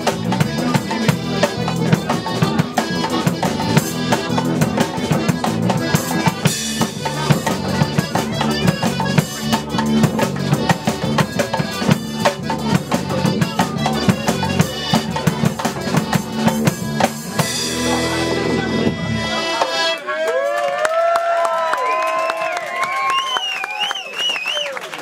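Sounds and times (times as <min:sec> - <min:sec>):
guitars: 0:00.0 - 0:20.0
tuba bass line: 0:00.0 - 0:20.0
drums beating: 0:00.0 - 0:20.1.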